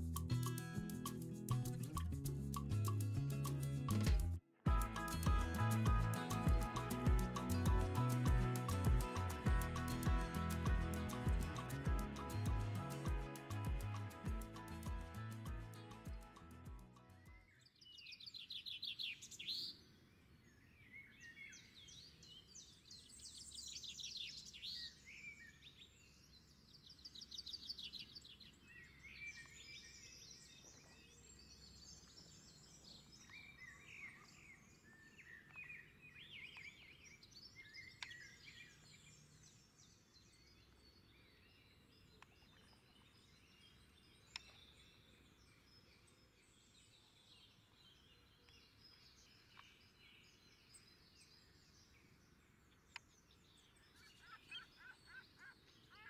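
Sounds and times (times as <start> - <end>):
faint outdoor hiss: 0.0 - 55.0
songbirds chirping and trilling: 5.0 - 56.0.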